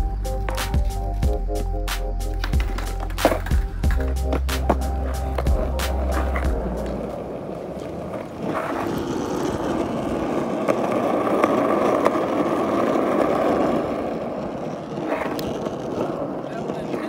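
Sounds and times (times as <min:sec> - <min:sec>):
skateboard wheels rolling on asphalt: 0:00.0 - 0:17.0
skateboard clicks over bumps: 0:02.3 - 0:17.0.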